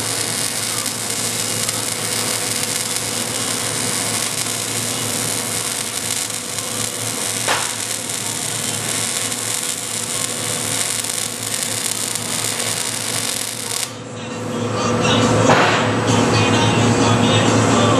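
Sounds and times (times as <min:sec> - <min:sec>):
welding arc crackling: 0:00.0 - 0:14.0.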